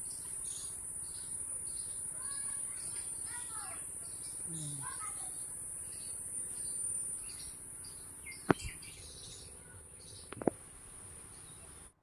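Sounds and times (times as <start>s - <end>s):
high-pitched insect trill: 0.0s - 9.6s
faint bird chirps: 0.0s - 10.4s.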